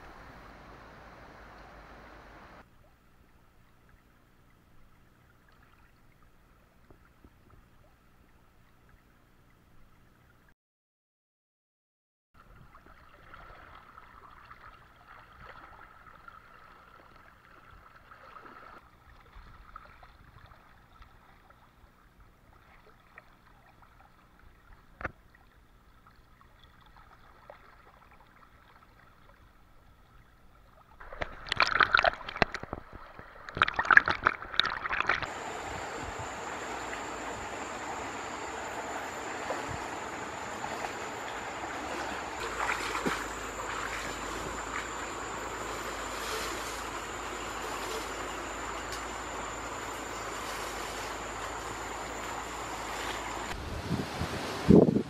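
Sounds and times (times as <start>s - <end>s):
steady hiss with high whine: 0.0s - 2.6s, 35.2s - 55.0s
floodwater flowing and gurgling: 0.0s - 10.5s, 12.4s - 54.8s
loud water splashes: 31.0s - 48.2s.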